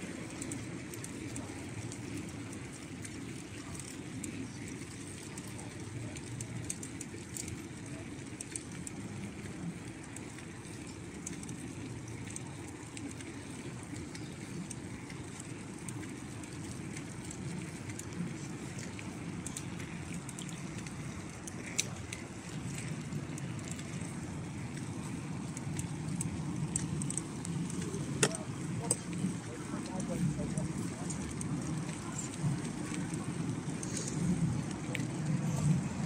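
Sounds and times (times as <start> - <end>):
wind rumbling on microphone: 0.0 - 36.0.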